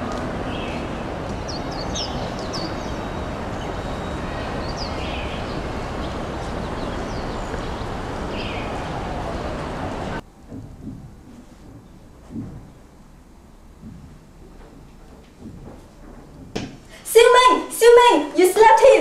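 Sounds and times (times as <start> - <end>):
steady background rumble: 0.0 - 19.0
small birds chirping: 0.4 - 10.2.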